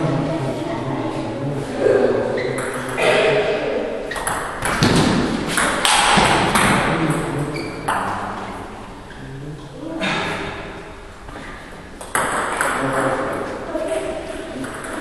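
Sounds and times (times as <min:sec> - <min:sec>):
ball bouncing on table: 0:04.1 - 0:07.3, 0:12.0 - 0:13.3
table tennis ball hits: 0:04.1 - 0:07.3, 0:12.0 - 0:15.0.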